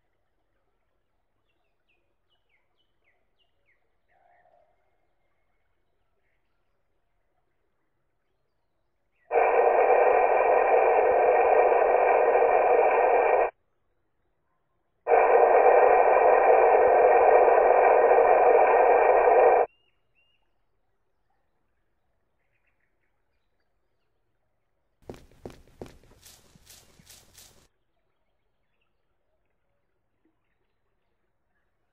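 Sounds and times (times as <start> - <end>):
water leak hiss: 9.3 - 13.5, 15.1 - 19.7, 25.0 - 27.7.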